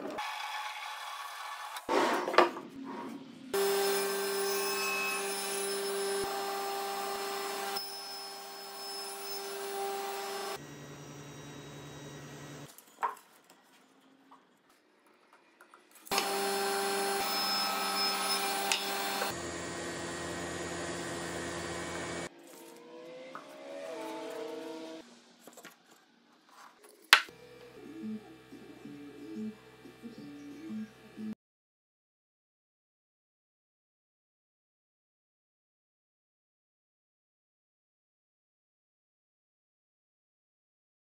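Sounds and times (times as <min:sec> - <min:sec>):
table saw cutting wood: 0:00.0 - 0:12.7, 0:16.1 - 0:25.2.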